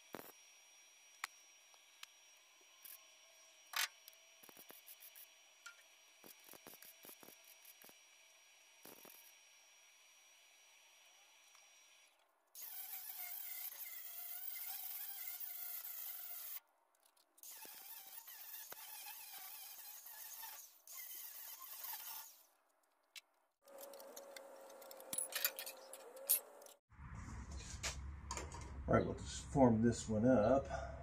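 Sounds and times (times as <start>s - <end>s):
angle grinder grinding steel: 0.0s - 16.6s.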